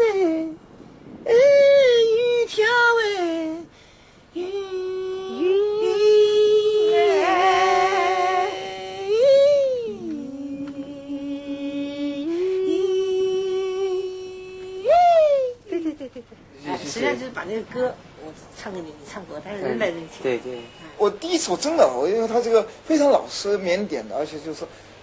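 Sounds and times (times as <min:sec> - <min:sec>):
high voice singing held notes: 0:04.4 - 0:15.6.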